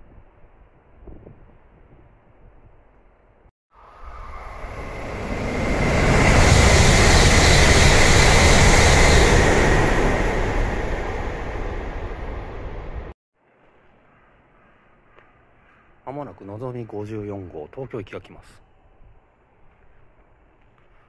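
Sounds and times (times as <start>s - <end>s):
train passing at speed: 3.8s - 13.2s.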